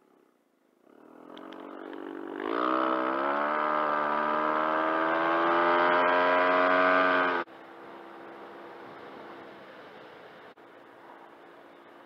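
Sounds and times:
scooter engine accelerating: 0:00.8 - 0:08.7.

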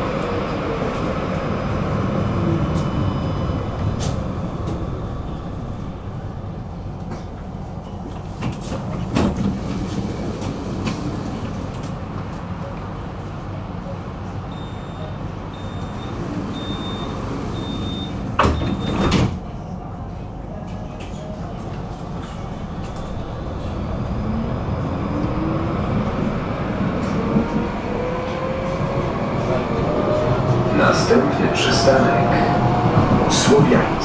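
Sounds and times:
tram rumbling on rails: 0:00.0 - 0:34.0
short electronic beeps: 0:14.5 - 0:19.0.

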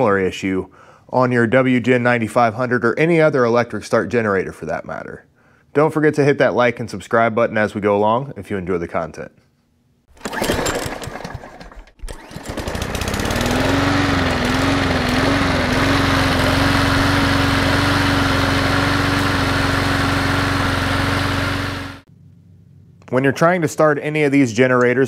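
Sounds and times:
generator engine running: 0:10.2 - 0:22.1.

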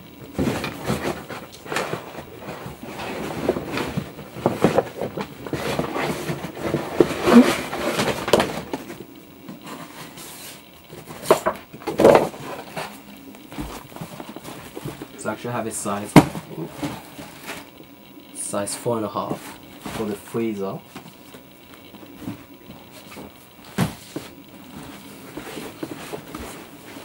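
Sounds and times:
cardboard boxes rustling: 0:00.2 - 0:17.8, 0:18.4 - 0:27.0.

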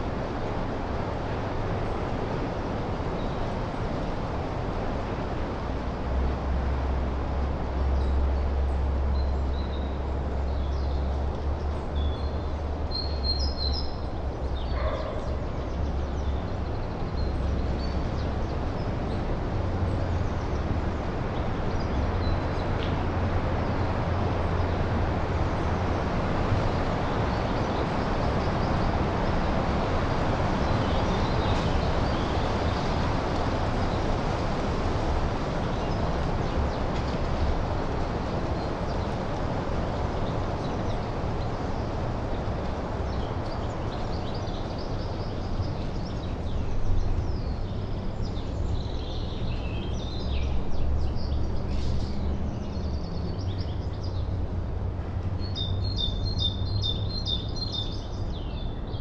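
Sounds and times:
wind rushing through pine trees: 0:00.0 - 0:59.0.

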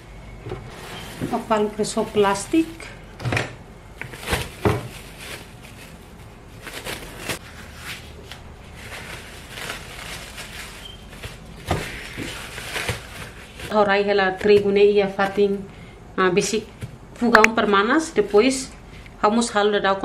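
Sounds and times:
cling film rustling and crinkling: 0:00.7 - 0:03.0, 0:04.0 - 0:15.4.

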